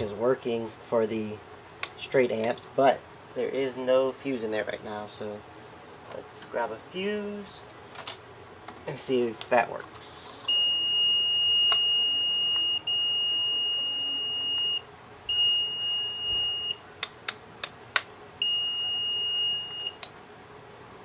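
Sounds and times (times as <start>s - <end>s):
multimeter high-pitched beep: 10.5s - 16.8s, 18.4s - 20.0s.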